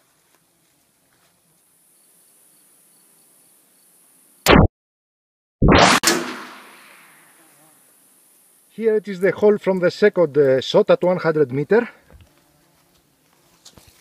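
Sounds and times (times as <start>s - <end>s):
gunshot echo: 5.6s - 7.4s
shotgun blasts: 5.6s - 7.4s.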